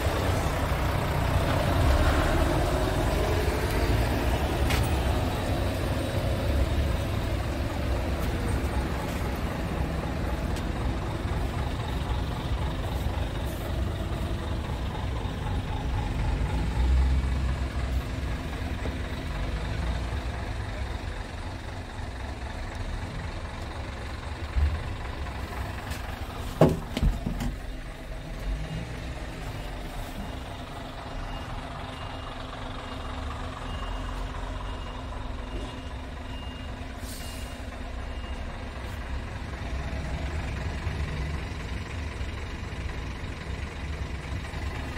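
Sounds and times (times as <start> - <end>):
diesel truck engine idling: 0.0 - 44.9
faint high beep: 28.6 - 38.6.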